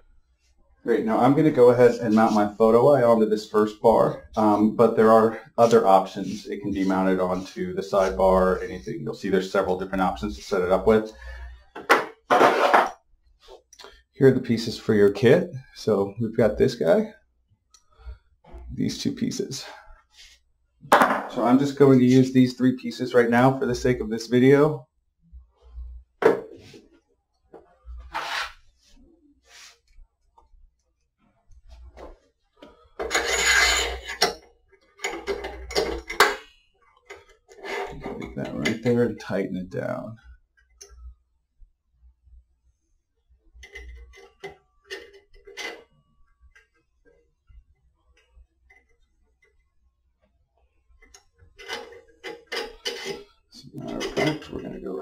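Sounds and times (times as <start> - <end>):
metal scraping on belt: 28.1 - 28.6, 33.0 - 34.4, 37.1 - 38.9, 51.6 - 54.6.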